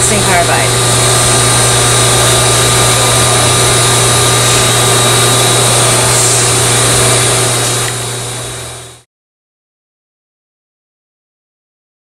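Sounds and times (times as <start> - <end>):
loud machinery drone: 0.0 - 9.0.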